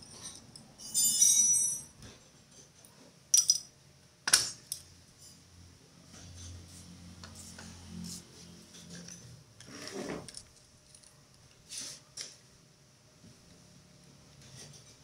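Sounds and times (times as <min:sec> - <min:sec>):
metal tools clinking: 0:00.0 - 0:02.0, 0:03.3 - 0:03.7.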